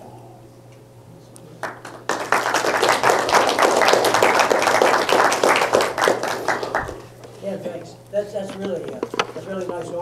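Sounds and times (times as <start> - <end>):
audience applauding: 1.6 - 7.1.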